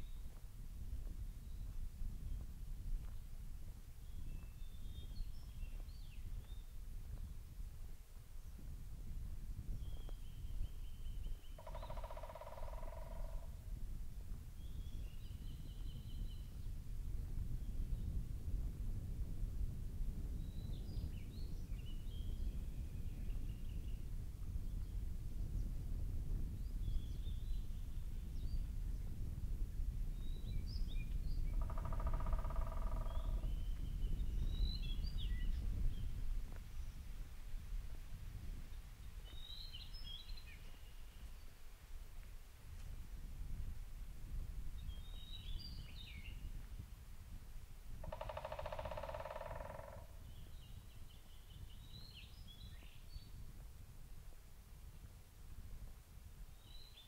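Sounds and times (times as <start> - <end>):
low buzzing pulsed animal call: 11.6 - 13.6, 31.6 - 33.4, 48.0 - 50.2.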